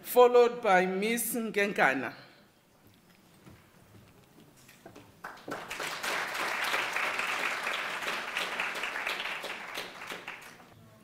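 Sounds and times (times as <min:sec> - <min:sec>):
audience applauding: 0:05.2 - 0:10.7.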